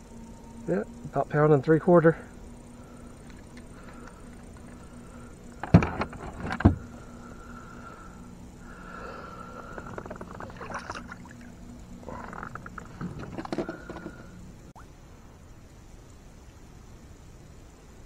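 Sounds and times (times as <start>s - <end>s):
faint steady hum: 0.0s - 18.0s
handling clicks and rattles: 12.2s - 14.2s.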